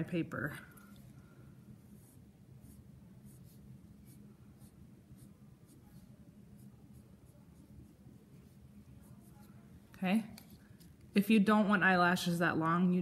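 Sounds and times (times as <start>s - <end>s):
pencil scratching on paper: 1.8s - 9.5s.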